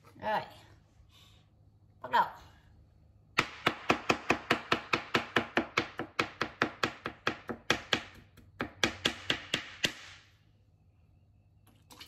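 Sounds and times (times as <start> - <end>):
knife chopping on plastic board: 3.4 - 10.0.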